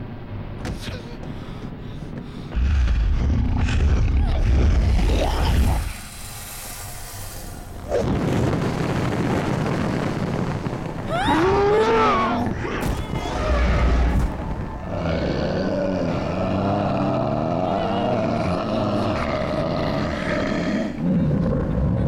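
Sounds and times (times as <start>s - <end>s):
deep boom: 2.5s - 6.0s
burning flames rushing: 2.5s - 22.0s.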